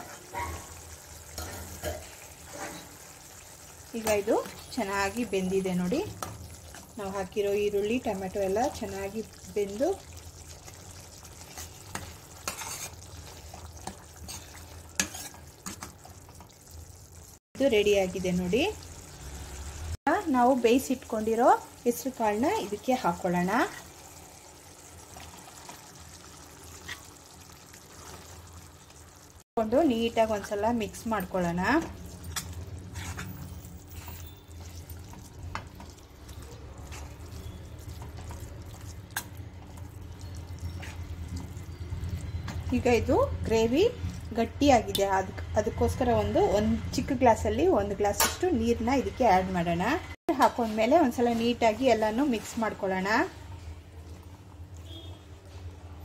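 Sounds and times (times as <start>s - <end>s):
soft simmering sizzle: 0.0s - 56.0s
ladle scraping a steel pan: 11.5s - 13.2s, 13.8s - 15.8s, 32.4s - 34.8s
spoon stirring thick food: 31.7s - 43.0s.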